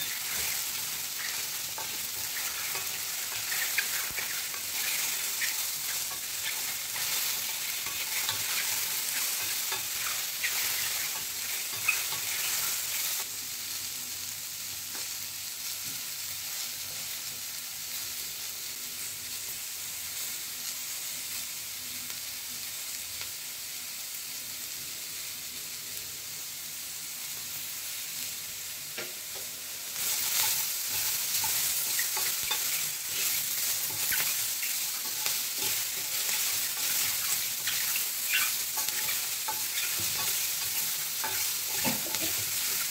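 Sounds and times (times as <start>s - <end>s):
spatula scraping pan: 0.0s - 13.0s, 30.0s - 42.9s
vegetables sizzling in oil: 0.0s - 42.9s.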